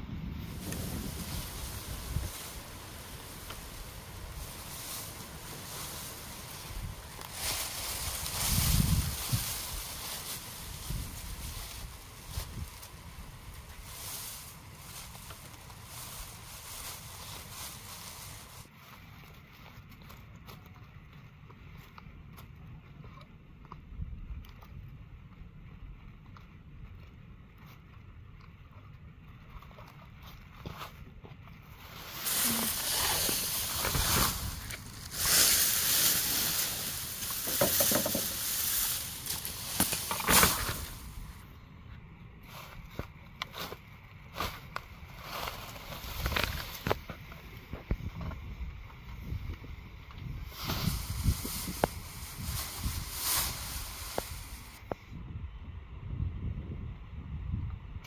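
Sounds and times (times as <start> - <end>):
dry grass rustling and crackling: 0.0 - 55.0.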